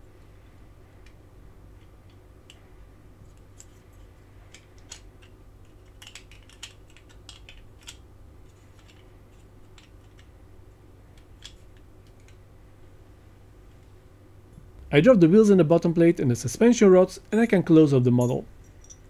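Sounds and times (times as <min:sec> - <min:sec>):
faint low hum: 0:00.0 - 0:19.0
plastic piece clicking into toy: 0:05.8 - 0:08.0.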